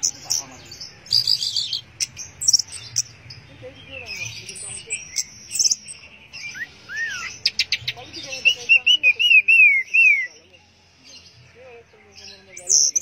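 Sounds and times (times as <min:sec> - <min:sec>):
bird whistling song: 0:01.0 - 0:03.2, 0:03.8 - 0:10.5, 0:12.2 - 0:13.0.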